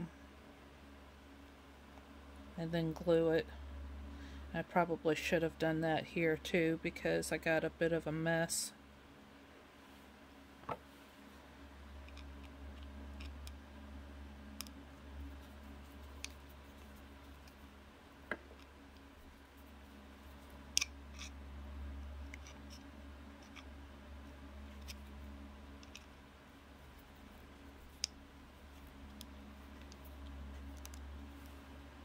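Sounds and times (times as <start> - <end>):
faint low hum: 0.0 - 32.0
screwdriver clicks and scrapes: 20.7 - 21.4.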